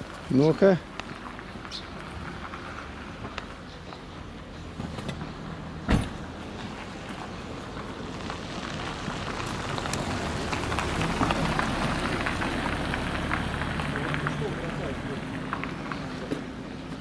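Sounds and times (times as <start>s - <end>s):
car tailgate thud: 5.9s - 6.2s
gritty crackle with clicks: 7.7s - 16.5s.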